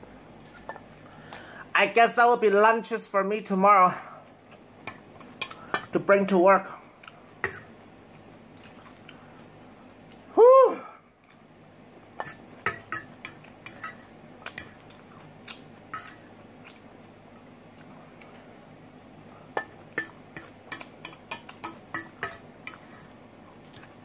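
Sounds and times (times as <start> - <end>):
fork clinking against metal bowl: 4.9 - 6.3, 12.2 - 14.8, 15.9 - 16.3, 19.6 - 23.1.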